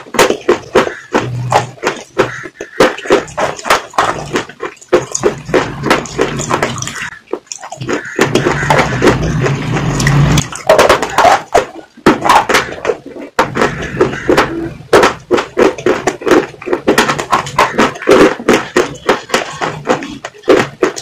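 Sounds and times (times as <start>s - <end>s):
wet mouth sounds: 0.0s - 12.4s.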